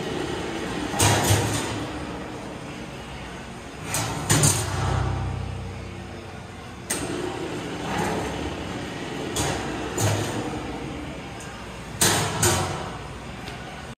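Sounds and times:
mixer low mechanical hum: 0.0 - 13.9.

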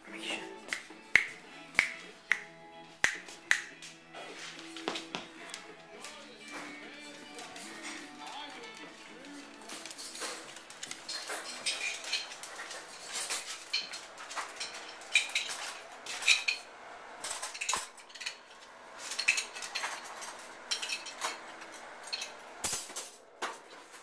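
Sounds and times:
light metallic clinks and rattles: 6.1 - 23.3.

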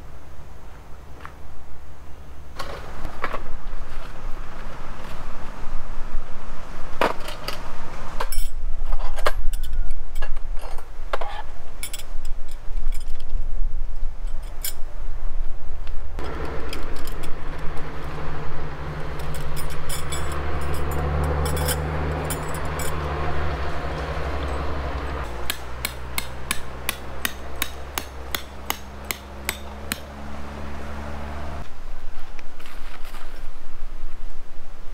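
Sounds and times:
metal tent pegs clinking: 7.2 - 13.4, 16.2 - 30.2
hammer hitting metal peg: 25.2 - 30.1.

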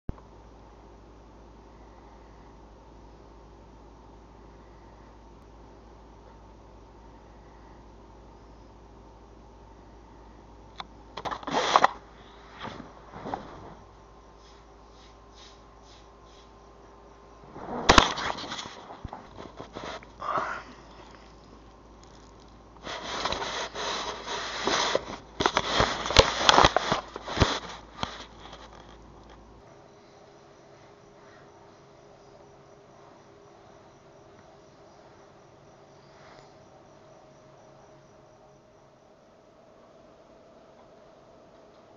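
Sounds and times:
bedding rustling and scraping: 11.2 - 16.0, 17.4 - 29.4.

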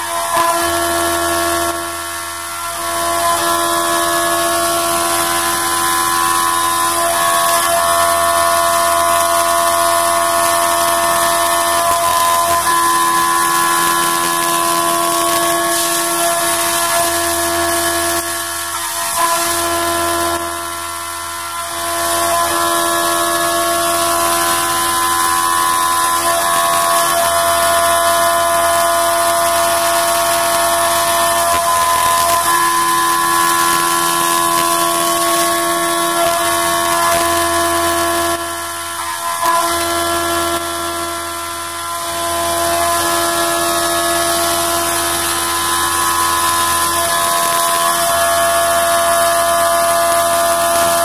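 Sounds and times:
milling machine whine: 0.0 - 51.0.

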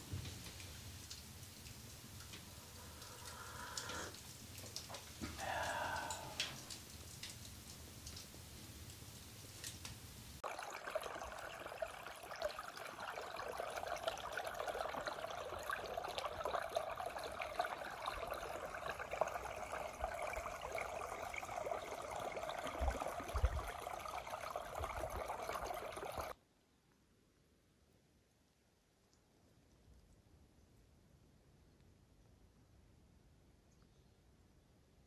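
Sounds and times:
creek trickling over stones: 0.3 - 26.4.

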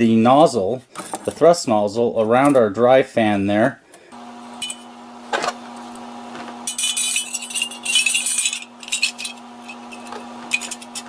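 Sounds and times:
metal parts clinking: 6.7 - 11.0.

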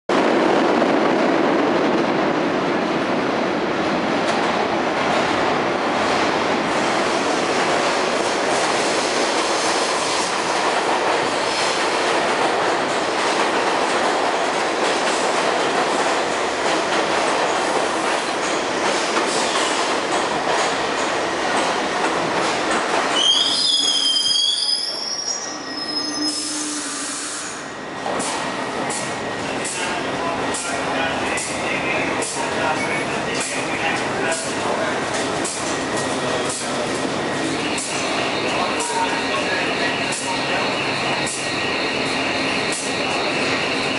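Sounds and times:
low steady train hum: 0.1 - 43.9
subway train rail rumble: 0.1 - 43.9
high-pitched brake squeals: 23.2 - 27.7.

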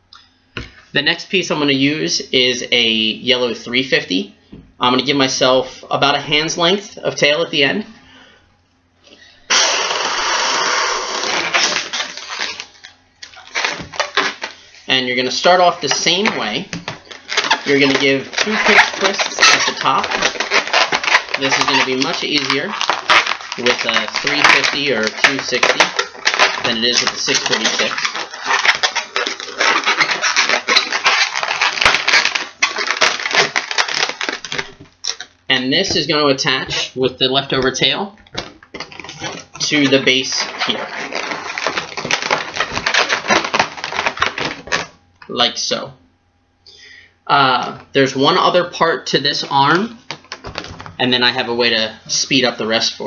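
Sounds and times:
balloon inflating air rush: 9.5 - 12.6
latex balloon rubbing: 9.5 - 44.9.

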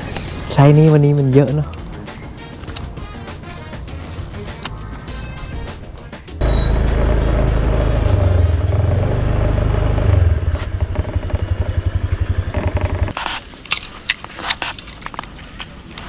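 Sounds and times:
motor scooter engine running: 6.4 - 13.1.

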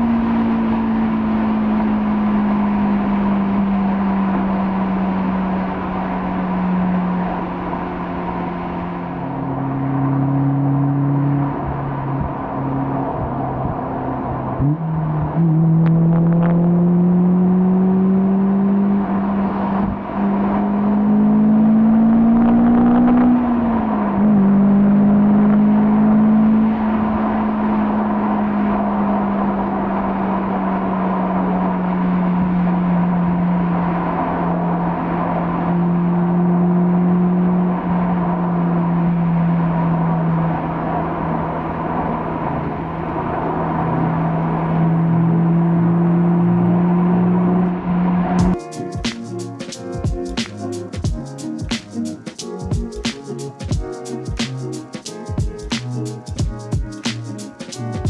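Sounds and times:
wind and tyre noise: 0.0 - 49.1
car engine accelerating: 0.0 - 57.6.

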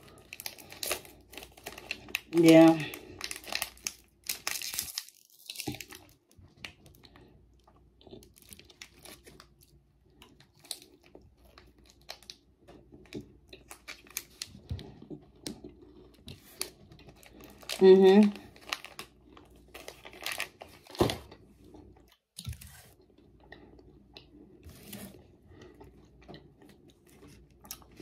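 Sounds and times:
person chewing: 0.0 - 2.3, 2.9 - 17.8, 18.4 - 28.0
plastic wrapper crinkling: 0.0 - 7.0, 8.2 - 9.7, 13.6 - 14.7, 16.3 - 21.3.

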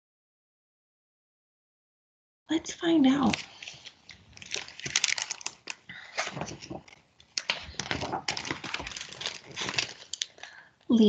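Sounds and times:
book pages rustling and turning: 3.0 - 10.4.

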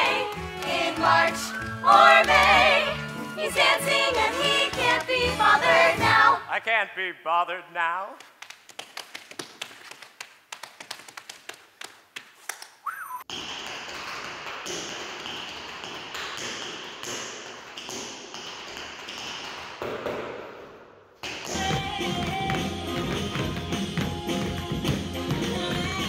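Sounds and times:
tap shoes tapping on floor: 21.2 - 26.0.

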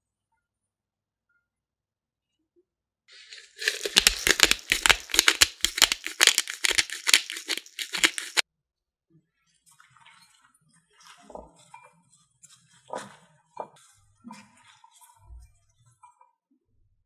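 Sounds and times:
pepper mill grinding: 3.1 - 8.4.

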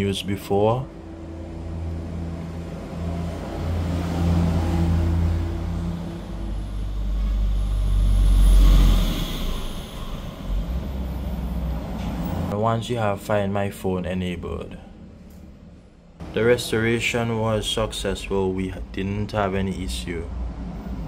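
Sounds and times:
vehicle engine humming: 0.0 - 12.6.

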